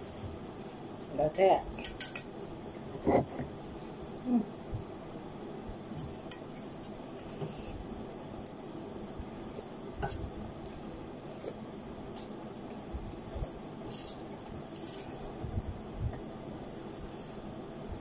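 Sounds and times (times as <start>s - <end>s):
low background noise: 0.0s - 18.0s
cutlery clinking in metal bowl: 1.8s - 2.3s.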